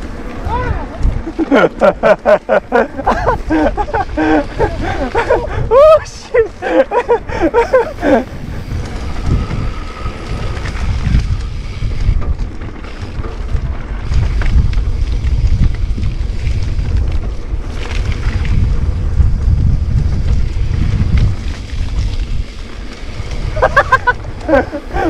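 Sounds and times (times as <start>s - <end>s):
wind rushing over microphone: 0.0s - 25.0s
person shouting: 0.4s - 1.0s, 5.5s - 6.5s.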